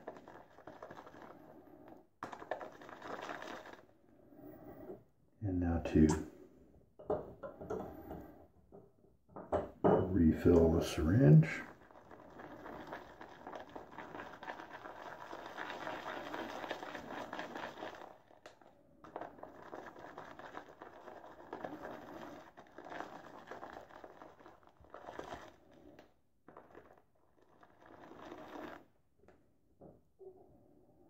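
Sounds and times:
shaving brush churning lather: 0:00.0 - 0:01.5, 0:02.2 - 0:03.8, 0:10.6 - 0:18.4, 0:19.1 - 0:25.7, 0:26.6 - 0:28.9.

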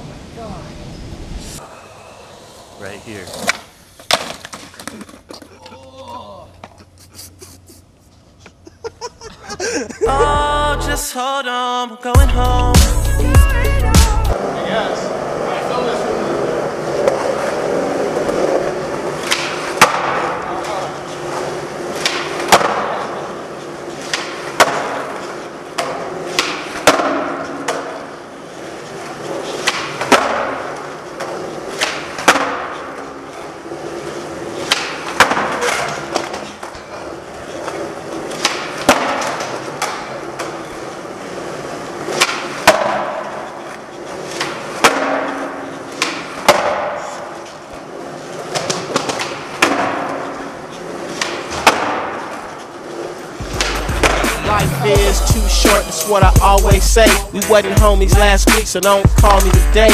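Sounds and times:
skateboard wheels rolling on hard floor: 0:01.2 - 0:06.9, 0:14.3 - 0:54.6, 0:56.0 - 0:59.9
skateboard clacks: 0:03.3 - 0:06.9, 0:16.0 - 0:54.7.

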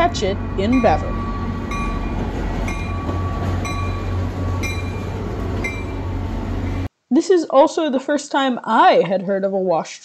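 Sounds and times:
diesel locomotive engine rumbling: 0:00.0 - 0:06.9
train bell ringing: 0:00.0 - 0:06.9.

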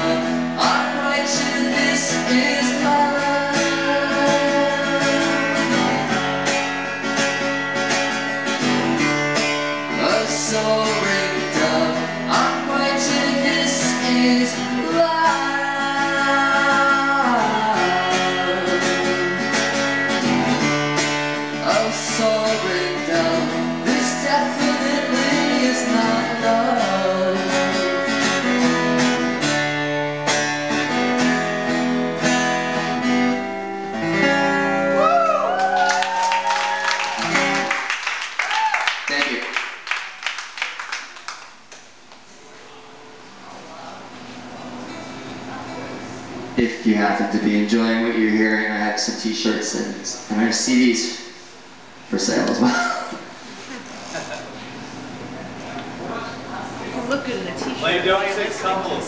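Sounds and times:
acoustic guitar strummed: 0:00.0 - 0:35.1, 0:36.5 - 0:38.0.

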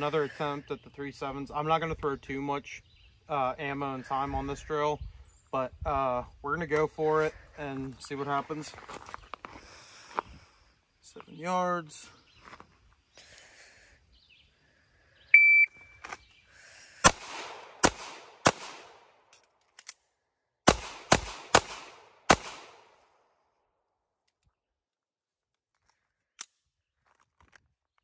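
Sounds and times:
shot timer beep: 0:15.4 - 0:15.8
pistol shots with echo: 0:17.0 - 0:19.2, 0:20.7 - 0:23.0.

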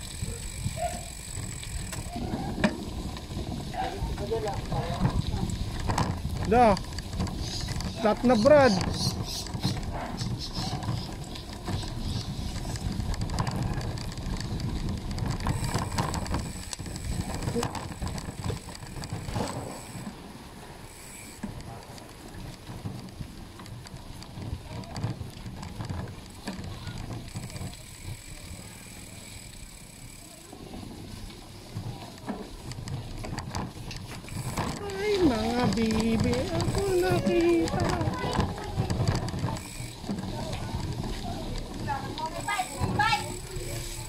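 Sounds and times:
wind buffeting microphone: 0:00.0 - 0:20.0, 0:32.8 - 0:43.6
bike clicks and rattles: 0:00.0 - 0:44.0
tyres rolling on dirt path: 0:00.0 - 0:44.0.

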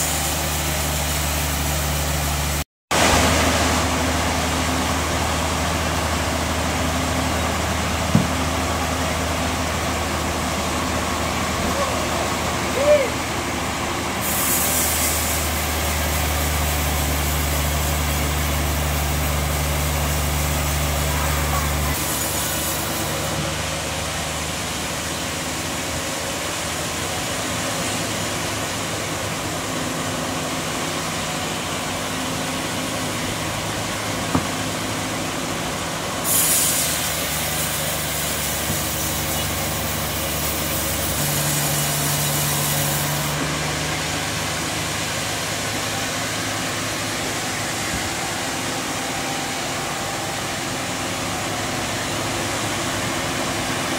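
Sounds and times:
forklift engine idling: 0:00.0 - 0:53.9
sawmill machinery running: 0:00.0 - 0:53.9
bright hiss: 0:14.2 - 0:23.4, 0:36.2 - 0:43.4.

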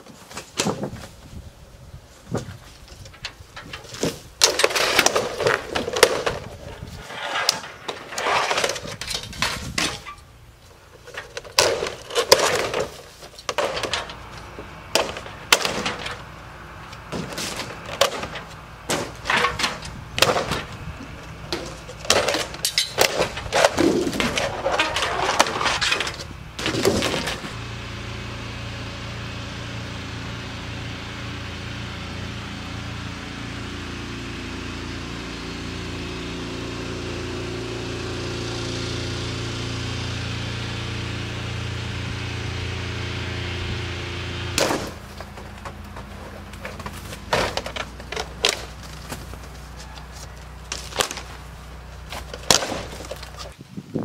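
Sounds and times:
steady motor hum: 0:00.7 - 0:54.0
siding panels cracking and snapping: 0:02.4 - 0:27.6, 0:44.6 - 0:53.6.

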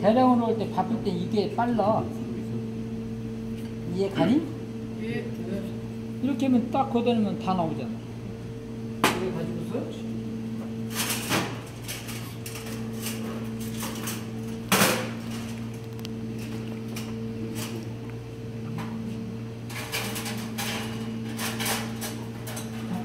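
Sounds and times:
low electrical hum: 0:00.0 - 0:23.0.

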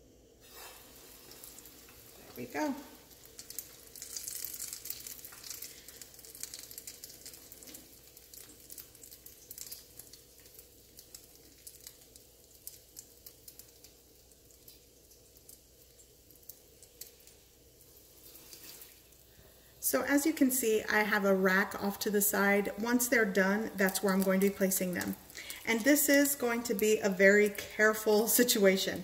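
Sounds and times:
food sizzling in hot oil: 0:00.4 - 0:29.0.

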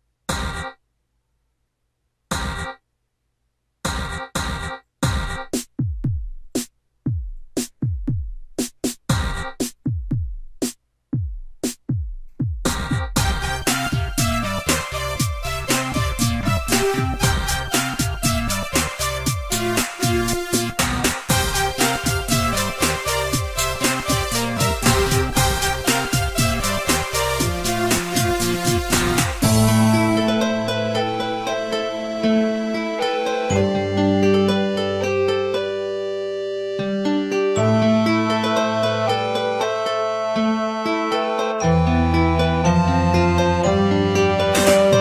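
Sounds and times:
electronic music with drum machine: 0:03.9 - 0:10.6, 0:11.2 - 0:39.8, 0:40.4 - 0:45.0
deep kick drums: 0:03.9 - 0:14.5, 0:23.4 - 0:26.8.

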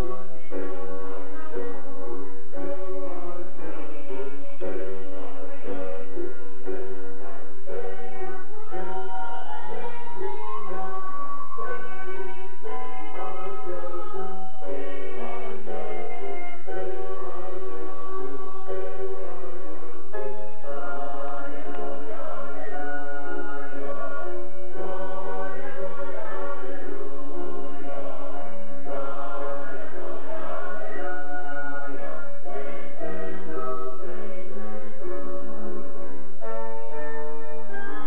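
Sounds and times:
vocal group singing in harmony: 0:00.0 - 0:38.0.

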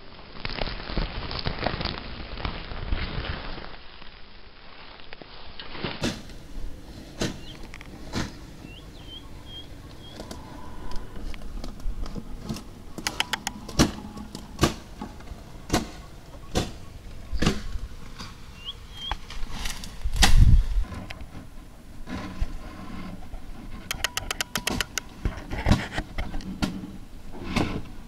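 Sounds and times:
sharp knocks and clicks: 0:13.0 - 0:14.8, 0:23.9 - 0:26.7.

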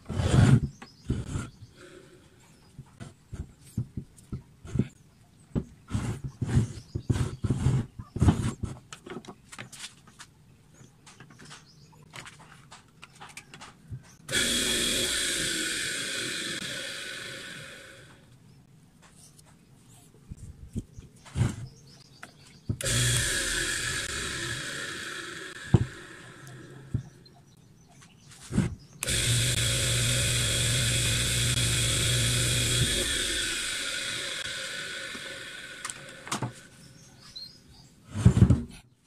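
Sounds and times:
electric motor starting and whining down: 0:14.2 - 0:18.4, 0:22.8 - 0:27.3, 0:29.0 - 0:37.1.

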